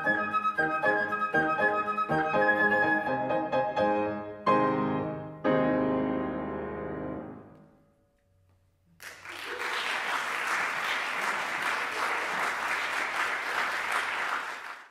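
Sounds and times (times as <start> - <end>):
flute and piano chord: 0.0 - 6.4
audience applause: 9.0 - 14.9.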